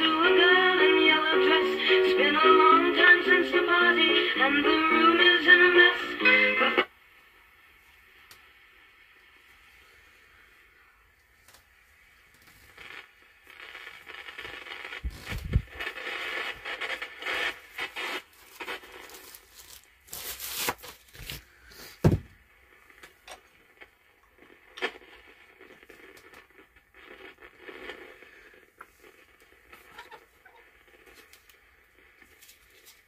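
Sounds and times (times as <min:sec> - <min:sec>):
vinyl record handling scraping: 0:12.4 - 0:22.2.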